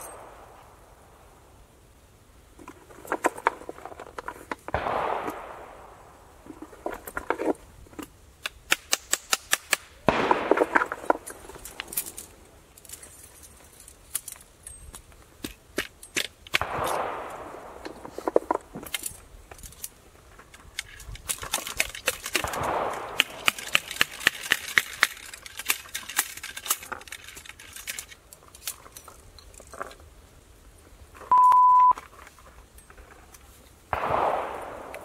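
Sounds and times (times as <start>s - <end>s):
rapid ramrod clicks: 20.6s - 28.9s
short steady beep: 31.3s - 32.0s.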